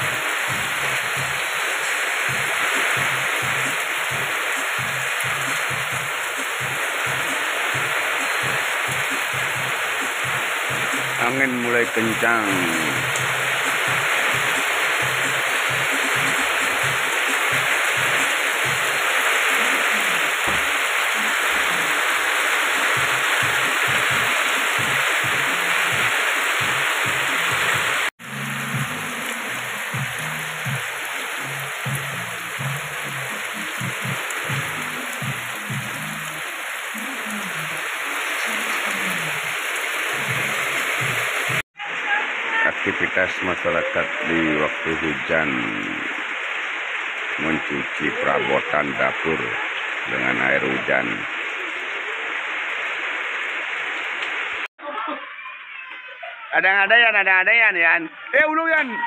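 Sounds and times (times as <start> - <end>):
water dripping on metal roofs: 0.0 - 41.6
heavy rain pouring: 0.0 - 54.7.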